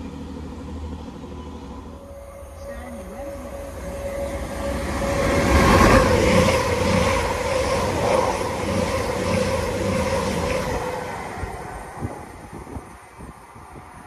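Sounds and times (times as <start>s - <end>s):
train passing: 0.0s - 14.0s
droning tone: 1.3s - 10.3s.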